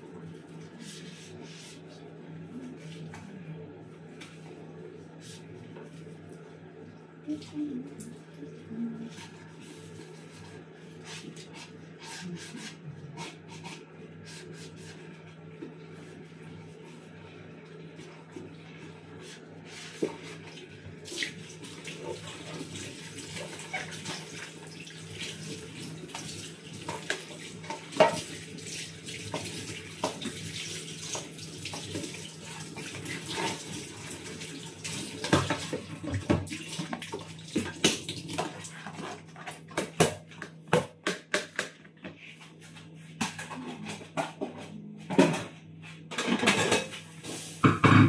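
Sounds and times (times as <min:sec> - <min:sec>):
plastic bags being rinsed: 0:05.4 - 0:11.6, 0:15.7 - 0:40.6.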